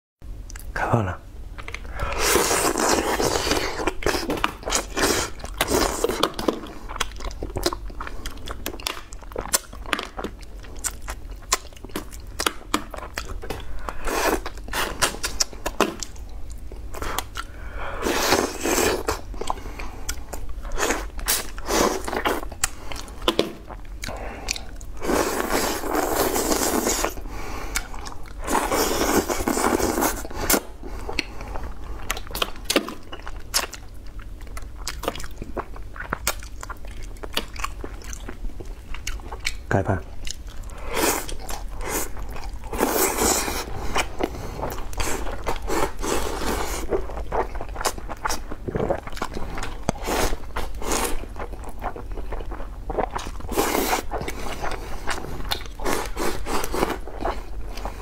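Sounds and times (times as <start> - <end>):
wet chewing and lip smacking: 1.5 - 17.6, 19.0 - 58.0
slurping: 2.0 - 6.7, 20.7 - 31.6, 40.6 - 49.3.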